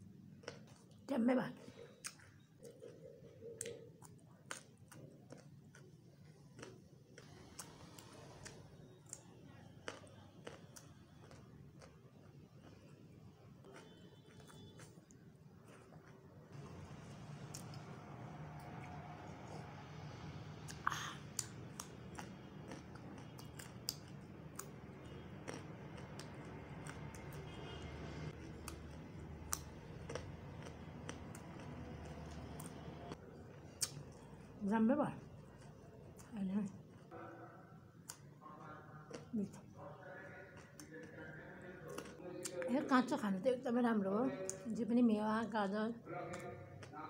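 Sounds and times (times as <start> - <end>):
person chewing with wet smacks: 0.0 - 37.2, 38.0 - 39.8, 40.5 - 42.7, 46.2 - 47.0
crunching crisp chips: 6.6 - 11.9, 25.4 - 27.2.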